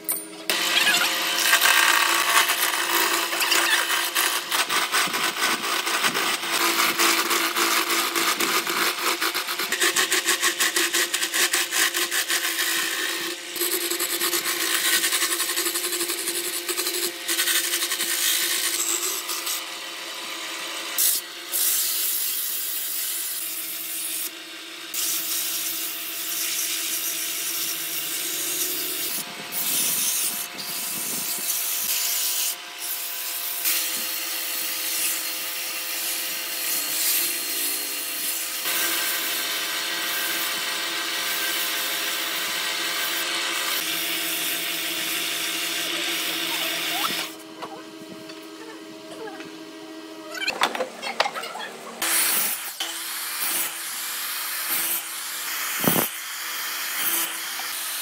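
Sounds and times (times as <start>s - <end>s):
chisel scraping spinning wood: 0.0s - 19.6s.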